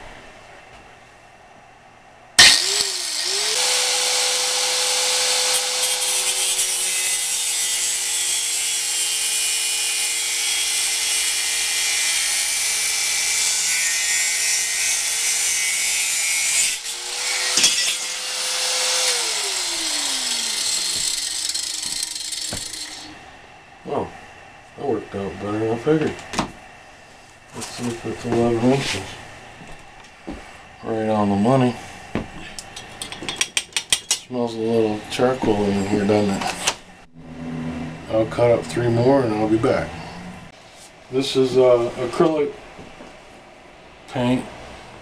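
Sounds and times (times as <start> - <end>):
angle grinder motor whine: 2.4 - 7.2, 14.8 - 23.3
grinder cutting metal: 2.4 - 23.2.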